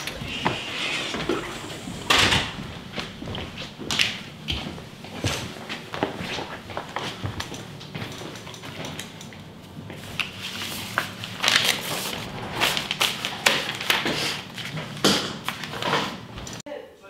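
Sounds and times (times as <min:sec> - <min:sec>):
paper rustling: 0:10.0 - 0:16.2.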